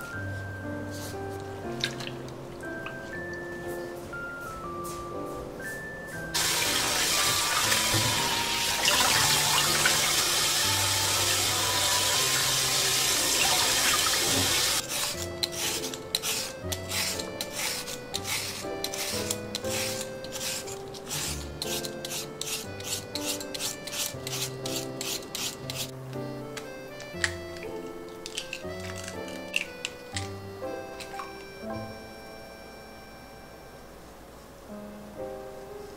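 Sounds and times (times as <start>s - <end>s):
light background music: 0.0s - 35.9s
water running: 6.4s - 19.1s
peeler scraping a carrot: 14.3s - 25.9s.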